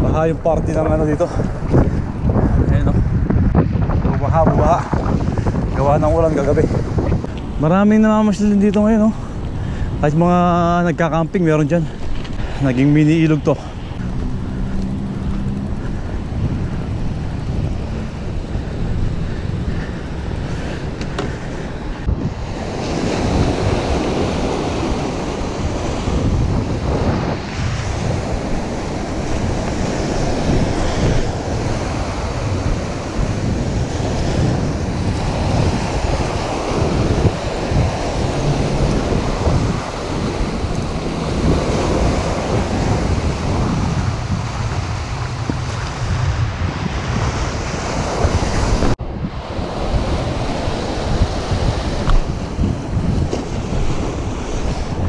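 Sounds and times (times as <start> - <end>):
wind buffeting microphone: 0.0 - 55.0
small waves breaking on sand: 17.8 - 55.0.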